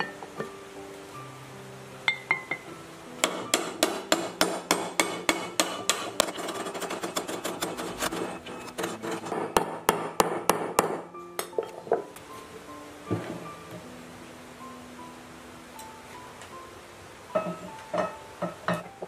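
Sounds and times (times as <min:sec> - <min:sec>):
hammer tapping on metal: 0:03.2 - 0:08.1, 0:08.7 - 0:11.7.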